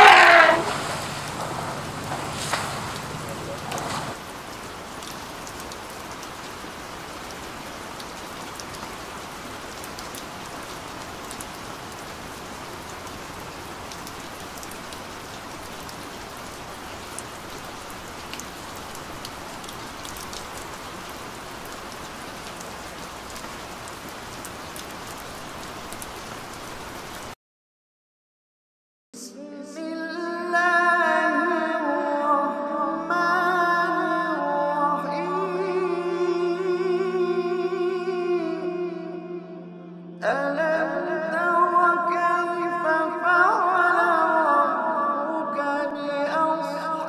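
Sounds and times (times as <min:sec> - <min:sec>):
rain-like hiss: 0:00.0 - 0:27.4.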